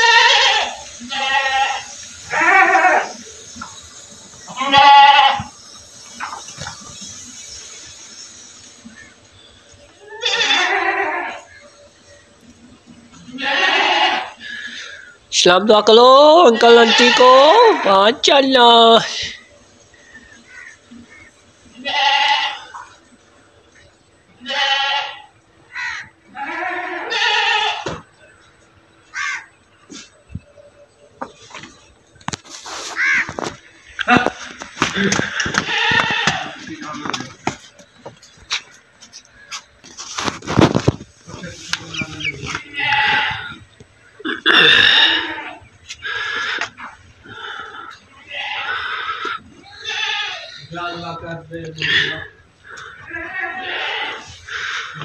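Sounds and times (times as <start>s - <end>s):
goat bleating: 0.0s - 3.2s, 4.5s - 5.5s, 10.0s - 11.5s, 13.2s - 15.0s, 16.4s - 18.1s, 21.8s - 22.9s, 24.4s - 28.0s, 34.0s - 37.3s, 42.0s - 43.6s, 44.2s - 46.7s, 47.3s - 51.2s, 51.8s - 55.0s.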